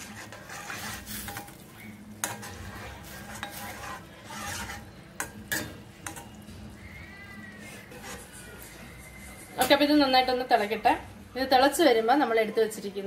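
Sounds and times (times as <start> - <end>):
metal spoon scraping a pan: 0.0 - 6.6, 7.6 - 10.6
spoon clinking against pan: 3.2 - 6.4.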